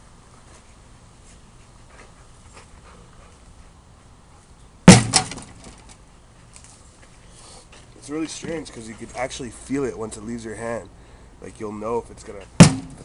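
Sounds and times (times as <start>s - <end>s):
tomahawk hitting wooden board: 4.9s - 5.8s, 12.6s - 13.0s.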